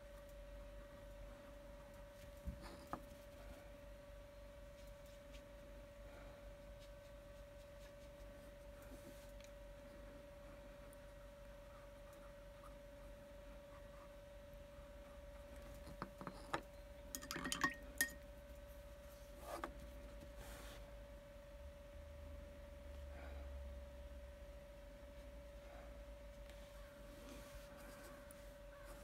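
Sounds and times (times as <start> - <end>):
faint high hum: 0.0 - 29.0
light glassy clinks: 17.1 - 18.2.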